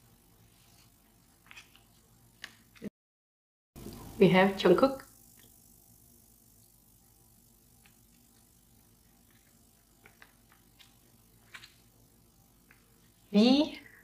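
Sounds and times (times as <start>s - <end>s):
photo cards clicking: 10.0s - 11.8s.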